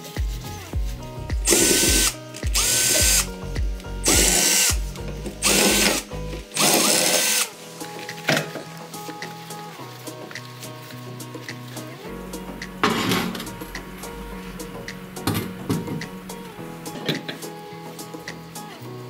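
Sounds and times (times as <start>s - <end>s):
cordless drill whining: 1.5s - 3.3s, 4.0s - 4.8s, 5.4s - 7.5s.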